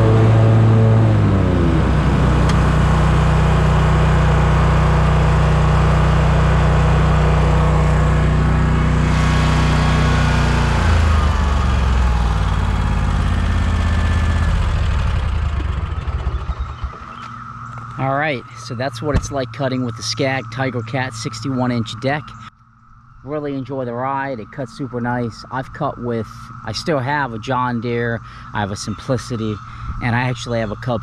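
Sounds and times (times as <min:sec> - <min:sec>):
mower engine running under load: 0:00.0 - 0:22.5.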